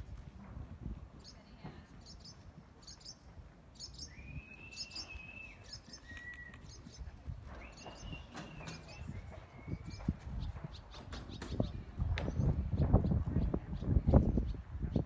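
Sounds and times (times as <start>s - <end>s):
birds chirping faintly: 1.2s - 15.0s
whistled bird note: 4.0s - 6.8s, 7.6s - 9.9s.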